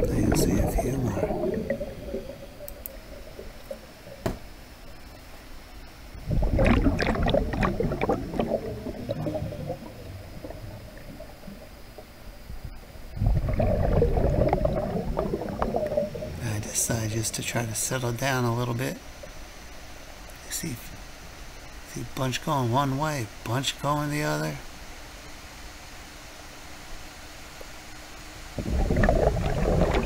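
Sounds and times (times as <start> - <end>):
underwater regulator bubbling: 0.0 - 4.3, 6.2 - 11.8, 13.1 - 16.8, 28.6 - 30.0.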